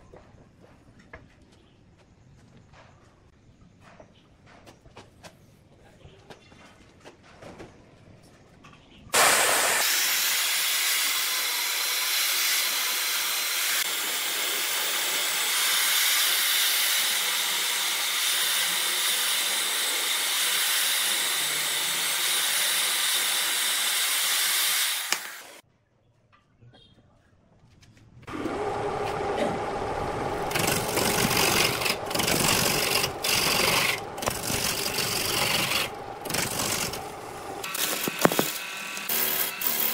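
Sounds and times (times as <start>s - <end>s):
chainsaw cutting log: 9.2s - 25.6s, 30.4s - 39.9s
turning tool scraping wood on lathe: 28.3s - 39.9s.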